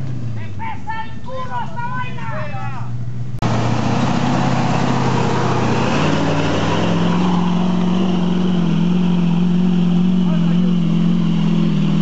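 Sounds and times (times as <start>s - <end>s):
engine revving under load: 3.3s - 12.0s.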